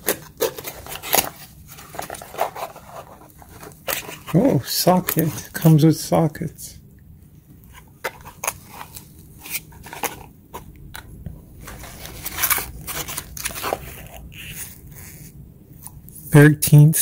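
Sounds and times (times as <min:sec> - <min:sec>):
cardboard box flaps scraping: 0:11.6 - 0:15.3.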